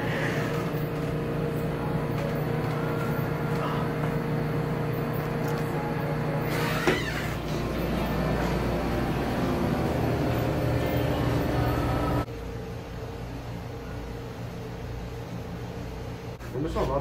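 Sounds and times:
kitchen equipment humming: 0.0s - 12.3s.

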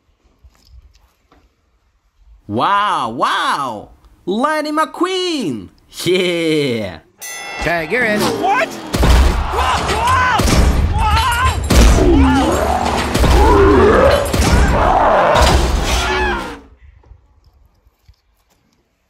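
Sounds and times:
cartoon character yelling and wailing: 2.5s - 3.9s, 9.4s - 16.6s
heavy thuds and booms: 8.9s - 16.0s.

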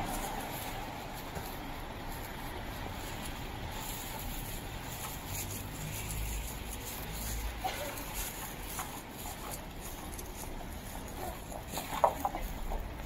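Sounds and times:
rain on wet road: 0.0s - 9.9s
vehicle passing: 0.0s - 13.0s.

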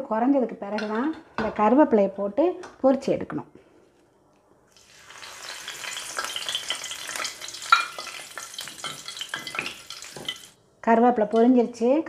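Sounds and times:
leaves sizzling in hot oil: 4.7s - 10.6s
spoon stirring: 5.2s - 10.6s.

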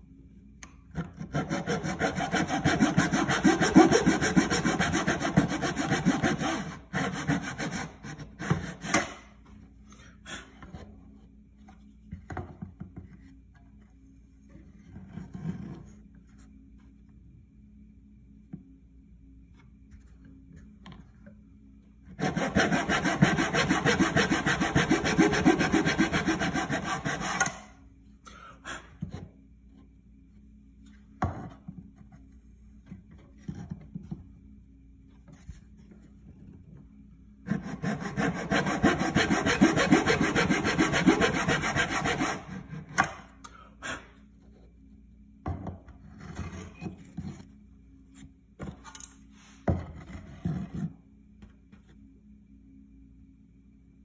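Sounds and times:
saw cutting wood: 1.2s - 9.2s, 22.2s - 27.7s, 37.5s - 43.2s.

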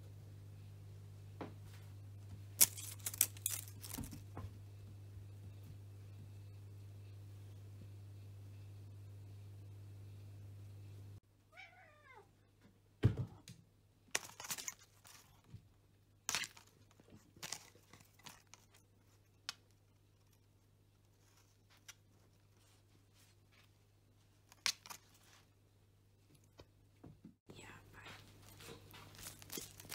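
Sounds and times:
packaged toy crinkling and knocking: 2.6s - 4.3s, 28.7s - 29.9s
cat meowing: 11.5s - 12.3s.

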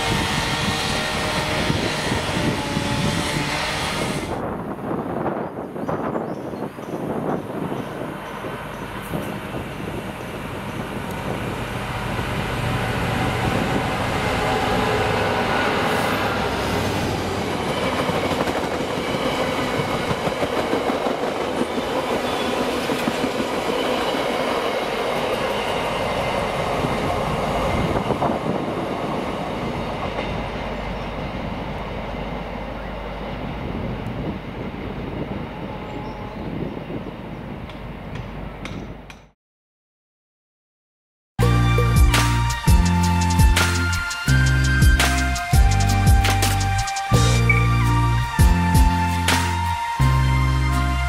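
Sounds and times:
diesel locomotive engine drone: 0.0s - 5.9s, 6.7s - 39.3s, 41.4s - 51.0s
train wheels clattering on track: 14.4s - 26.5s.

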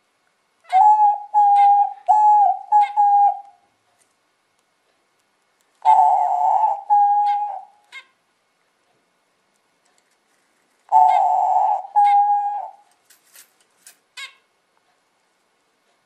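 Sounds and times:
dove cooing: 0.7s - 3.6s, 5.8s - 7.8s, 10.9s - 12.9s.

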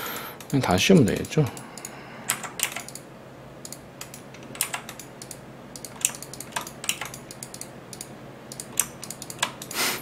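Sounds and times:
keyboard keys clicking: 2.3s - 3.0s, 3.6s - 9.7s.

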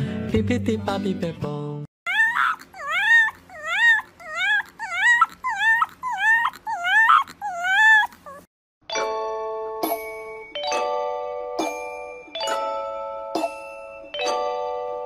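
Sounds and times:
puppy whining yips: 2.1s - 8.5s.

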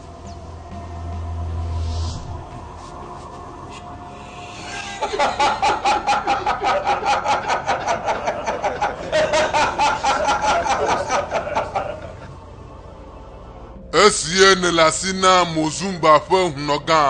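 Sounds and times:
person cackling: 4.5s - 12.4s.

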